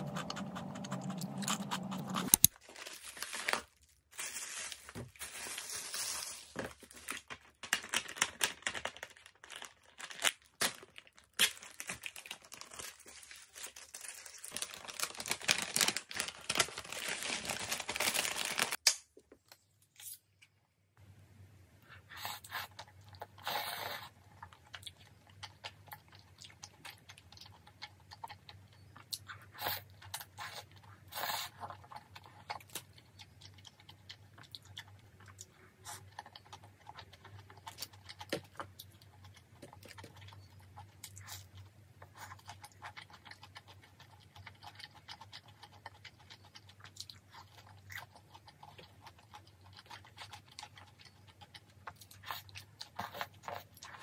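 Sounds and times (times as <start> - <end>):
faint low hum: 0.0 - 2.5
biting and slurping: 0.0 - 2.6
person chewing food: 0.0 - 2.6, 22.3 - 54.0.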